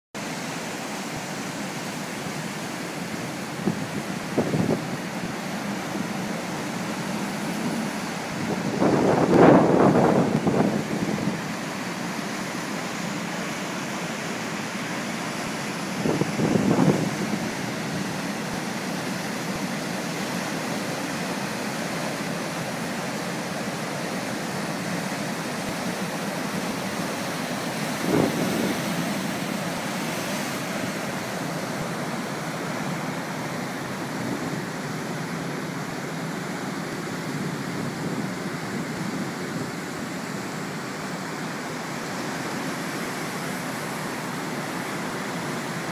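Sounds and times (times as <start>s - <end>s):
surf breaking on shore: 0.2s - 45.9s
wind on microphone: 3.6s - 5.0s, 7.3s - 11.6s, 16.0s - 18.1s, 27.8s - 32.0s.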